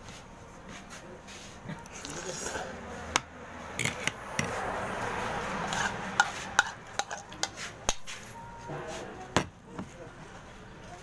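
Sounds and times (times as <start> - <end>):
spoon stirring and scraping bowl: 3.8 - 4.6, 5.2 - 9.9
spoon clinking against bowl: 5.7 - 7.6.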